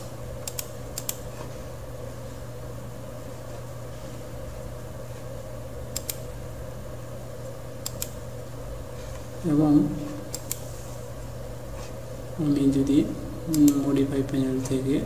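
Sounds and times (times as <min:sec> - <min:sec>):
computer room hum and hiss: 0:00.0 - 0:15.0
mouse clicks: 0:06.0 - 0:06.2, 0:07.8 - 0:08.2, 0:10.3 - 0:10.6.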